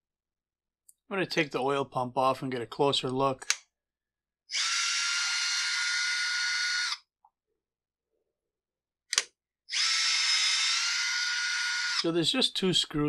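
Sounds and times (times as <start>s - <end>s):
electric screwdriver whining: 4.5s - 7.0s, 9.7s - 12.1s.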